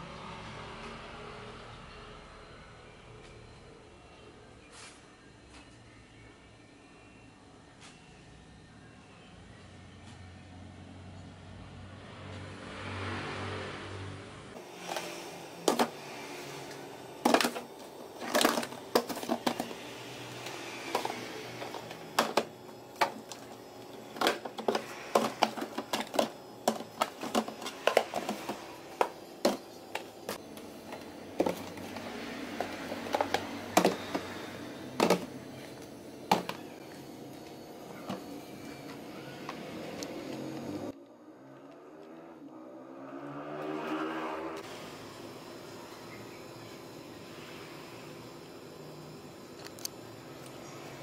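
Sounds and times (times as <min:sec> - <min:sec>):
plastic containers clacking: 0:14.9 - 0:16.0, 0:17.2 - 0:19.8, 0:20.9 - 0:34.3, 0:34.9 - 0:35.4, 0:36.3 - 0:36.6.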